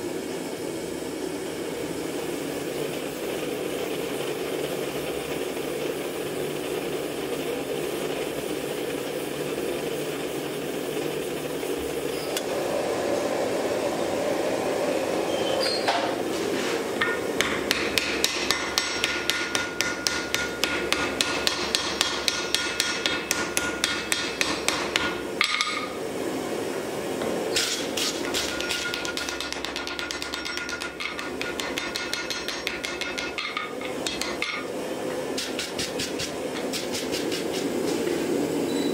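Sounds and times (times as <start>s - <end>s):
gas forge rushing: 0.2s - 21.7s
hammer striking on anvil: 17.0s - 26.0s, 27.6s - 34.7s.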